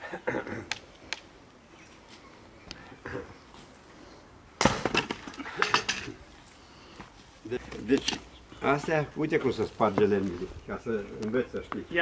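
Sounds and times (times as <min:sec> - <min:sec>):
axe cracking wood: 0:04.6 - 0:05.4
wood pieces clattering: 0:04.8 - 0:06.1.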